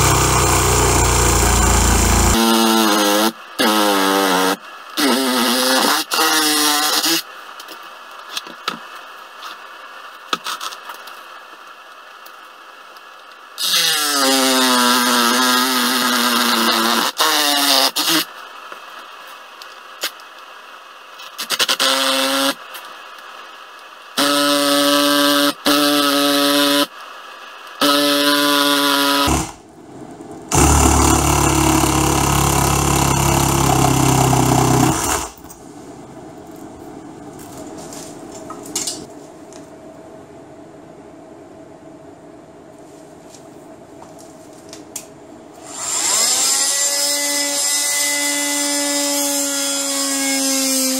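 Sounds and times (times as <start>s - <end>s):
deep machine sound: 0.0s - 2.4s, 29.2s - 35.4s
reciprocating saw cutting rubber: 0.0s - 7.2s, 13.6s - 18.3s, 21.3s - 22.6s, 24.2s - 26.9s, 27.8s - 29.6s, 30.5s - 35.5s, 45.6s - 50.9s.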